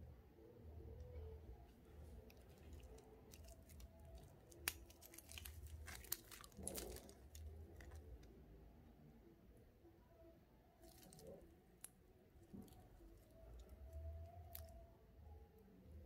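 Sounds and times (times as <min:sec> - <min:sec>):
plastic film crinkling: 0:02.3 - 0:08.3, 0:10.8 - 0:11.4.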